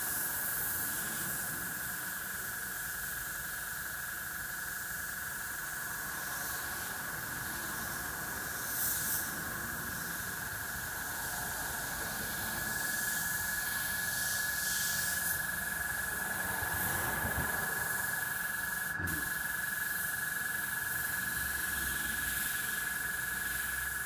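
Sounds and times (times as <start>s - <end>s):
airbrush hissing: 6.1s - 24.0s.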